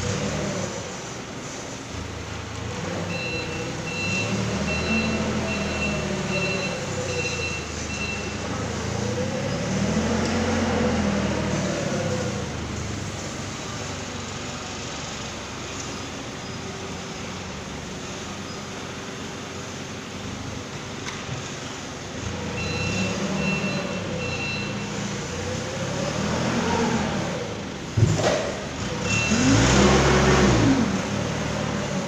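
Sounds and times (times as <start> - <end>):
forklift engine revving: 0.0 - 32.0
reversing alarm beeping: 3.0 - 8.5, 22.4 - 25.1.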